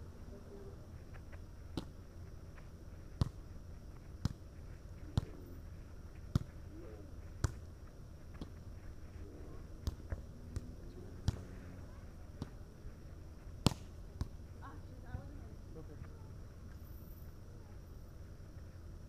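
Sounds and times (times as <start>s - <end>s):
volleyball slaps: 9.8s - 11.5s, 13.6s - 14.4s.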